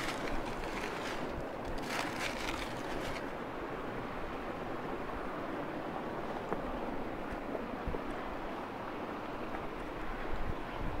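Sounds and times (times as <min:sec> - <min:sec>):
soil crumbling by hand: 0:00.0 - 0:03.3
wind noise on microphone: 0:10.0 - 0:11.0.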